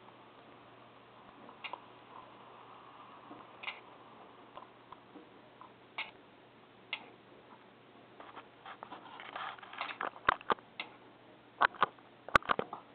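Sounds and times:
faint steady hum: 0.0 - 12.9.

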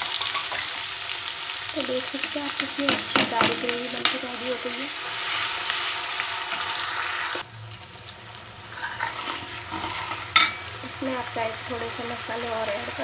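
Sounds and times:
gravy sizzling in hot oil: 0.0 - 13.0
ladle clink: 10.4 - 10.6.

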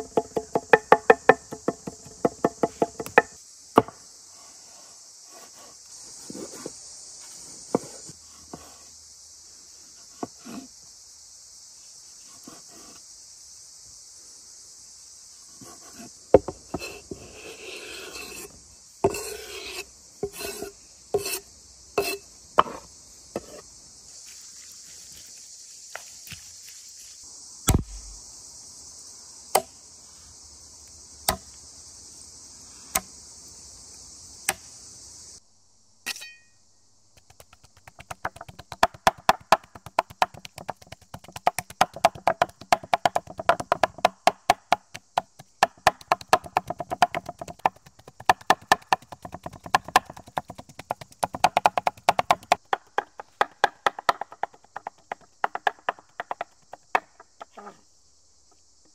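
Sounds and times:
insects chirring: 0.0 - 58.9
knife chopping on wooden board: 37.3 - 56.8.

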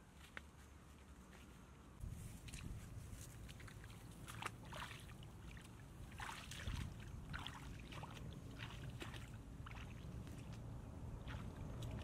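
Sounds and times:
footsteps splashing through water: 2.4 - 12.0.

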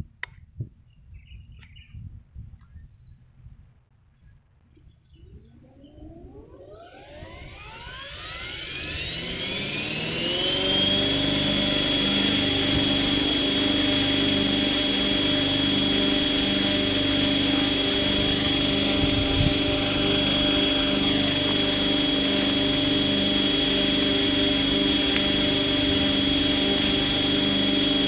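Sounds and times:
model helicopter running: 5.1 - 28.0.

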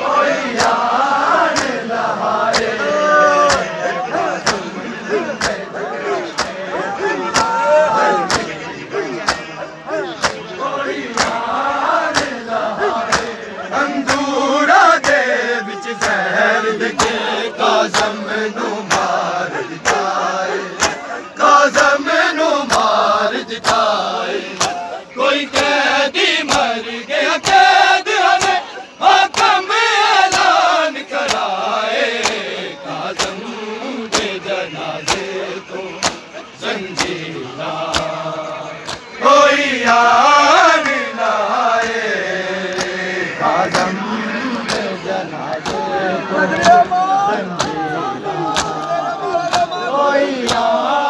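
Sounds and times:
men chanting in unison: 0.0 - 51.0
hands slapping bare chests: 0.5 - 2.8, 3.4 - 4.7, 5.3 - 6.6, 7.2 - 7.6, 8.2 - 8.6, 9.2 - 12.4, 13.0 - 13.4, 14.0 - 15.3, 16.0 - 16.3, 17.9 - 18.2, 18.8 - 19.2, 19.8 - 21.1, 22.6 - 23.0, 23.6 - 24.9, 26.4 - 26.7, 27.4 - 27.6, 28.3 - 28.6, 29.2 - 29.6, 30.2 - 32.5, 33.1 - 33.4, 34.0 - 34.4, 35.0 - 35.4, 36.0 - 36.3, 36.9 - 38.2, 38.8 - 39.1, 41.7 - 42.1, 42.7 - 43.0, 43.6 - 45.9, 47.6 - 49.8, 50.4 - 50.9.

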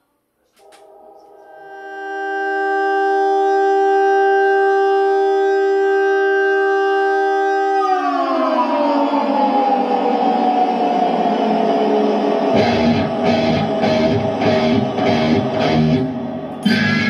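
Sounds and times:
electric guitar chord: 12.6 - 17.0.

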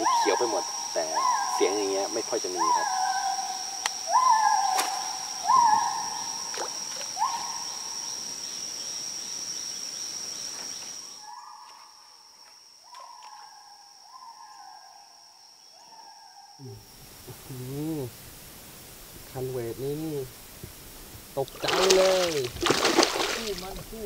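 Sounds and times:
gibbons whooping: 0.0 - 6.4
high insect drone: 0.0 - 24.0.

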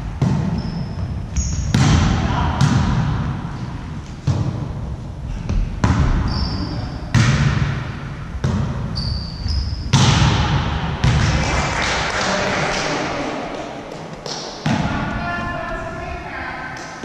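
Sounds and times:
volleyball hits echoing in gym: 0.0 - 15.7
short high shoe squeaks: 0.6 - 1.7, 6.2 - 7.0, 8.9 - 9.8.

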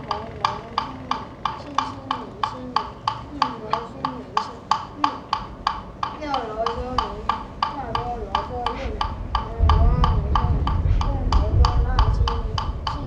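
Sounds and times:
wooden fish struck steadily: 0.0 - 13.0
low voice chanting: 6.2 - 13.0.

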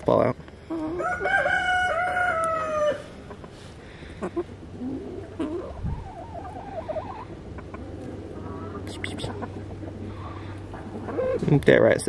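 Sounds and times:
hens clucking: 0.6 - 12.0
hen trilling: 3.9 - 11.5.

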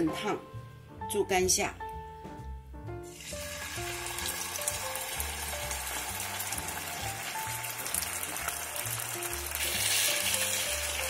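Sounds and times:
meat sizzling in hot oil: 3.0 - 11.0.

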